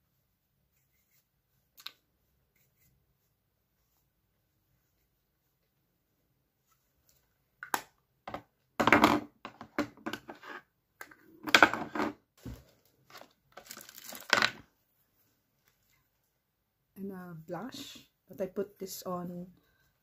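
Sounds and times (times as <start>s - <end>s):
makeup items rustling and clicking: 12.4s - 14.7s.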